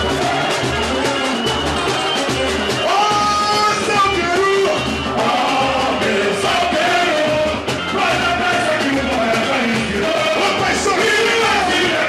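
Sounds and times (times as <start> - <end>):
low drum beat: 0.0 - 12.0
samba band: 0.0 - 12.0
men singing on microphones: 2.8 - 12.0.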